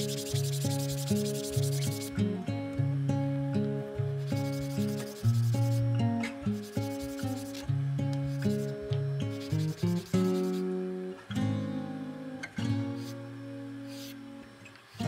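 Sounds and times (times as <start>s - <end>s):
wooden block rubbing on sandpaper: 0.0s - 2.2s, 4.3s - 5.9s, 6.5s - 7.7s, 8.3s - 10.7s
plucked guitar-like background music: 0.0s - 15.0s.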